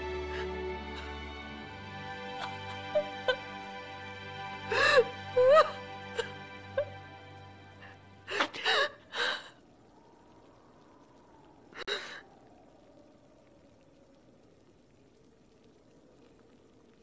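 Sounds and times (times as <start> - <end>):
background music: 0.0 - 9.0
woman sobbing: 0.1 - 1.5, 2.1 - 3.7, 4.5 - 7.0, 8.2 - 9.6.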